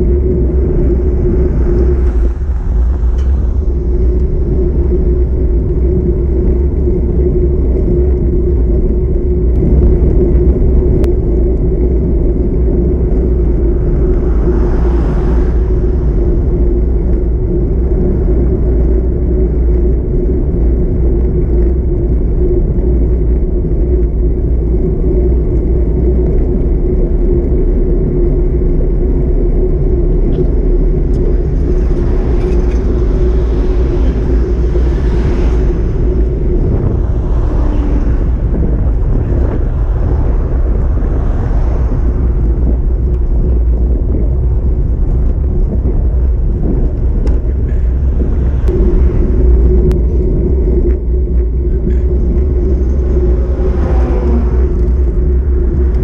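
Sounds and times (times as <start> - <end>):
car passing: 0.0 - 6.9, 11.7 - 19.8, 29.8 - 45.5, 46.2 - 56.0
wind and road noise: 0.0 - 56.0.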